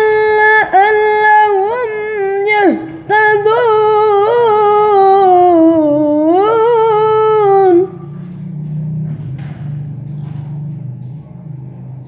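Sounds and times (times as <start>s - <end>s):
boy reciting melodically: 0.0s - 8.3s.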